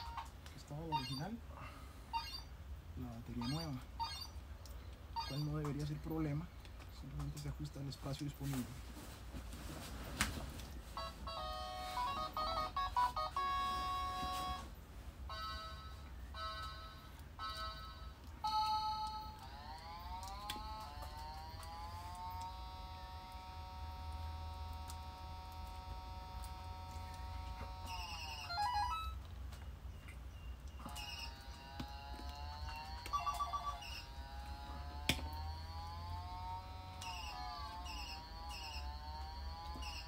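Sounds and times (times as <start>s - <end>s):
short repeated beeps: 0.9s - 1.4s, 2.2s - 2.5s, 3.4s - 4.4s, 5.2s - 5.6s.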